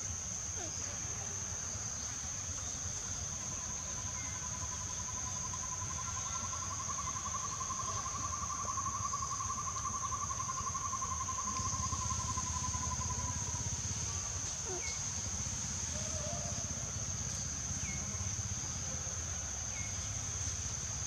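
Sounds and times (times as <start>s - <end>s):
lower pulsed insect trill: 0.0s - 21.0s
high-pitched insect drone: 3.5s - 18.5s.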